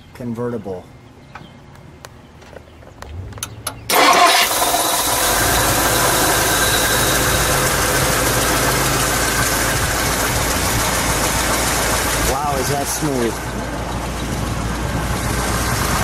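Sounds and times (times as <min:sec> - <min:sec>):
engine idling: 0:03.1 - 0:16.0
engine starter cranking: 0:03.4 - 0:10.4.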